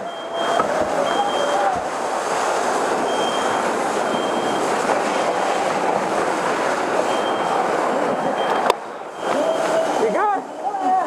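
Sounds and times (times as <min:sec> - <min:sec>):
fire hose water rushing: 0:00.0 - 0:11.0.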